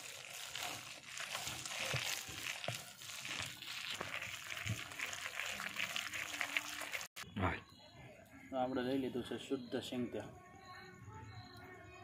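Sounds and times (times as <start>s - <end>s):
batter mixed by hand: 0.0s - 7.2s.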